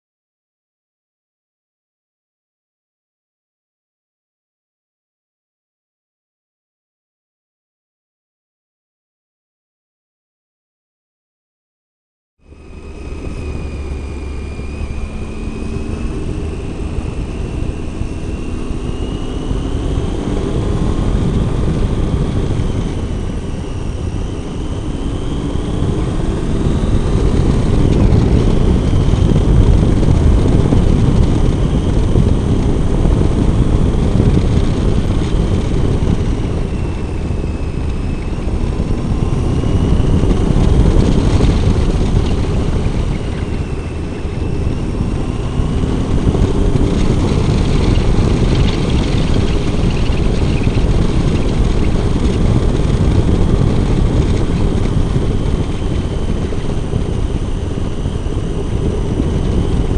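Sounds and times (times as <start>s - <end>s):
motorcycle engine revving: 12.4s - 59.9s
wind rumble on microphone: 12.4s - 59.9s.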